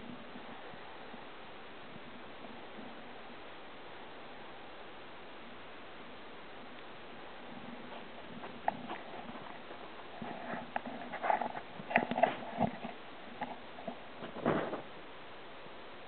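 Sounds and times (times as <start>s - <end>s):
soft fabric rustles: 7.4s - 14.9s
rat claws scratching on fabric: 7.8s - 14.9s.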